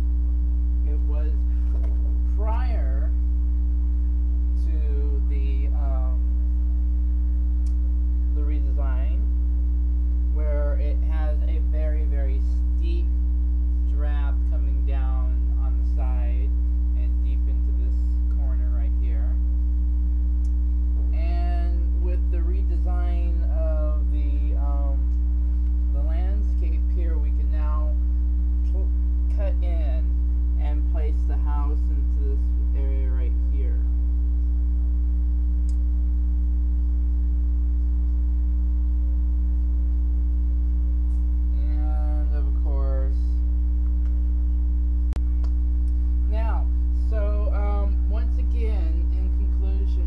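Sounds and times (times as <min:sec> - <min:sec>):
electrical mains hum: 0:00.0 - 0:50.0
faint steady tones: 0:00.0 - 0:50.0
person speaking: 0:00.8 - 0:03.2, 0:04.5 - 0:06.3, 0:08.3 - 0:09.3, 0:10.3 - 0:13.1, 0:13.8 - 0:19.4, 0:21.1 - 0:25.2, 0:25.9 - 0:28.0, 0:28.6 - 0:33.9, 0:41.5 - 0:43.4, 0:46.2 - 0:50.0.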